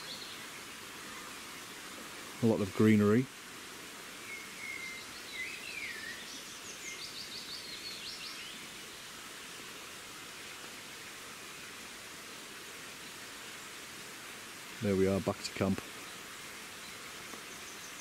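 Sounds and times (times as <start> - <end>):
songbird singing: 0.0 - 3.0, 4.1 - 9.1, 14.8 - 18.0
steady outdoor hiss: 0.0 - 18.0.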